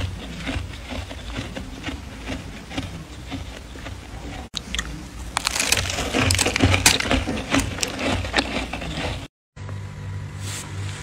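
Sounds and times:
frost and plastic bag crunching: 4.8 - 9.2.

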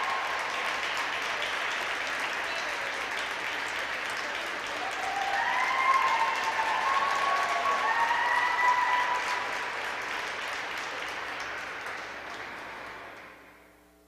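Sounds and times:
high-pitched cheering: 0.0 - 0.8, 4.7 - 9.6
audience applauding: 0.0 - 13.5.

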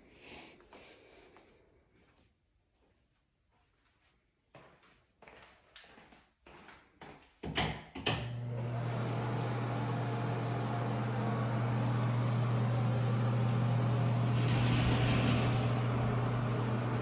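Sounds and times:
appliance motor humming: 8.2 - 17.0.

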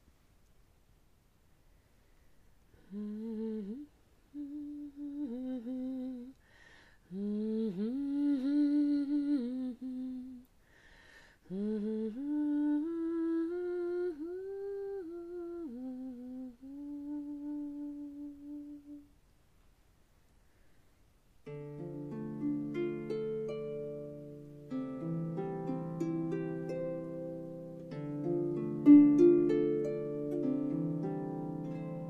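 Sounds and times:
woman humming: 2.8 - 6.4, 7.1 - 10.5, 11.4 - 19.1.

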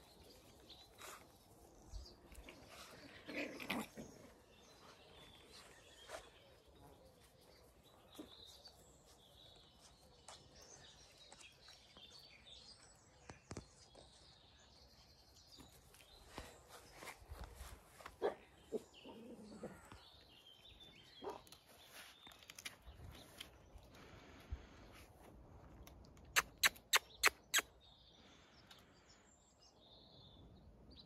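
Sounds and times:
faint birdsong: 0.0 - 31.0.

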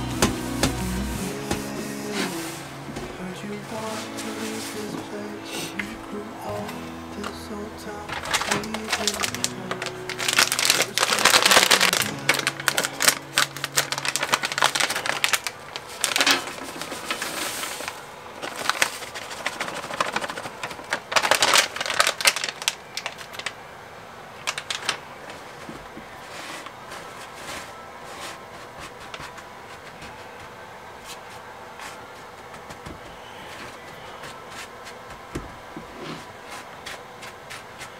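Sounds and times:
background music: 0.0 - 15.2
plastic pouch crinkling: 7.2 - 23.7, 24.3 - 30.4.

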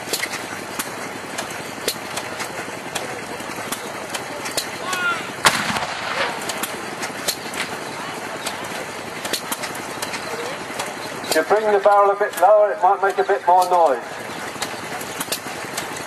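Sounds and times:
field gun firing: 5.4 - 6.8.

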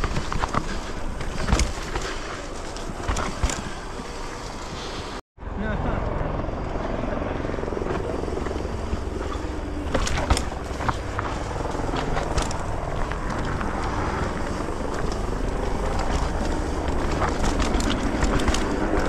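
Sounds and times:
bike knocking and rattling on rocks: 0.0 - 4.0, 8.9 - 19.0
bike tyres rumbling on trail: 0.0 - 5.2, 7.3 - 19.0.

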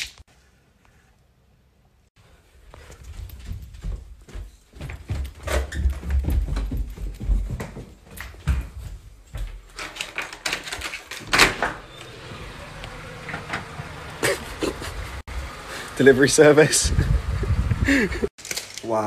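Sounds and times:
bare footsteps thumping: 3.1 - 9.7.

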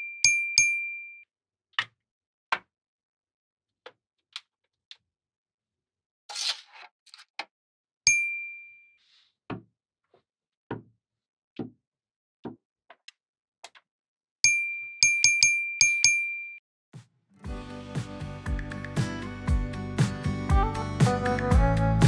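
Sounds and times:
bright bell-like ding: 8.1 - 8.8.

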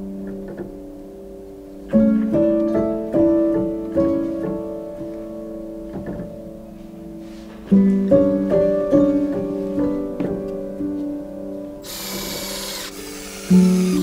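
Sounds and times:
cordless drill drilling into wood: 11.8 - 14.0.

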